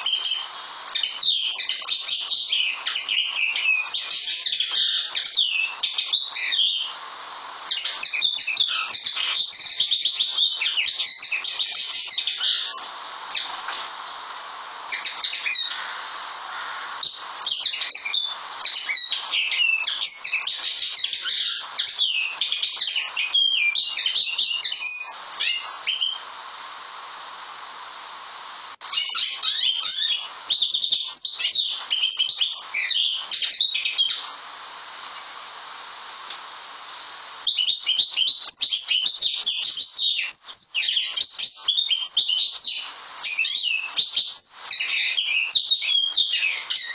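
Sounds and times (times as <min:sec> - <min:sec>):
linnet twittering song: 0:00.0 - 0:14.2, 0:14.8 - 0:26.4, 0:28.8 - 0:34.4, 0:37.4 - 0:46.9.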